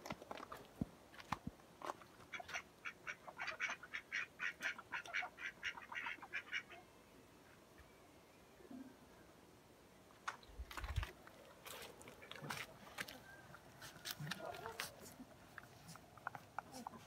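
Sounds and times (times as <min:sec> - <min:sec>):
ducks quacking: 0:02.3 - 0:06.8.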